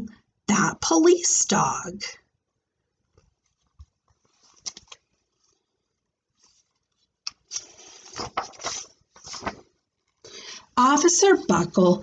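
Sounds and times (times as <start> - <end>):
paper rustling: 3.1 - 10.3.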